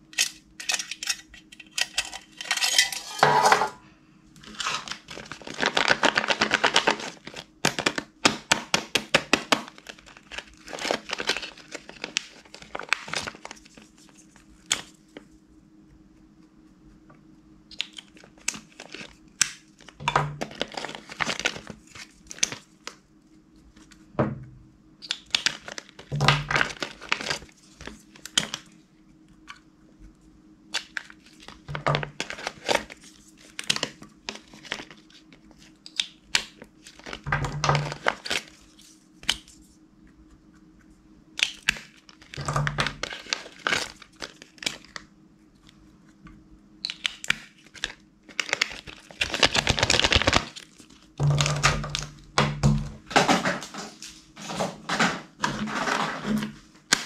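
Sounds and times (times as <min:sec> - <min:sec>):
slime crackling and popping: 0:46.8 - 0:52.8.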